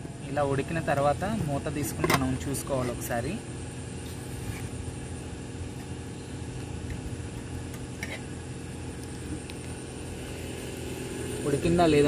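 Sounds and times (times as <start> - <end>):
low mechanical motor hum: 0.0 - 12.0.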